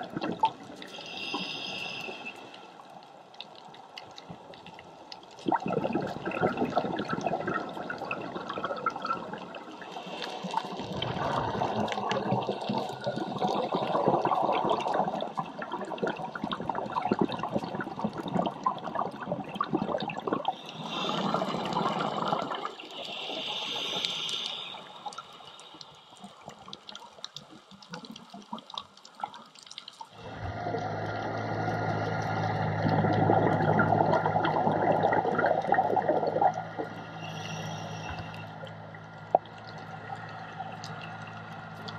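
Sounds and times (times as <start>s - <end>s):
air bubbling from regulator underwater: 5.4s - 25.2s, 30.1s - 41.9s.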